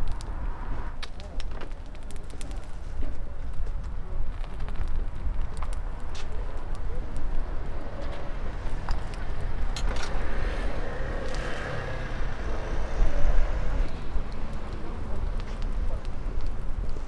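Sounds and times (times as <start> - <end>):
low rumble of traffic or wind: 0.0 - 17.0
faint voices: 6.1 - 8.6, 12.3 - 17.0.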